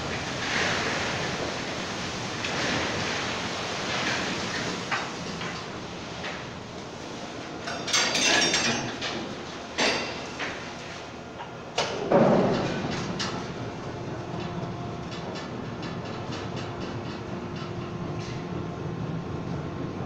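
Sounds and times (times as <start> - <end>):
steady mechanical background: 0.0 - 20.0
metal clanks and bangs: 11.8 - 13.6.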